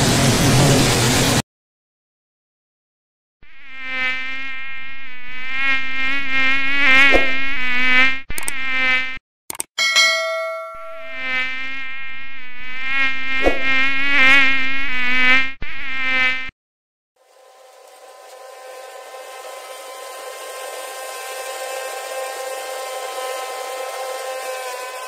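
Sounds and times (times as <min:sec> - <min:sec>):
mosquito buzzing: 0:03.4 - 0:09.2, 0:10.8 - 0:16.5
clicks: 0:08.3 - 0:09.7
bell-like ding: 0:09.8 - 0:11.2.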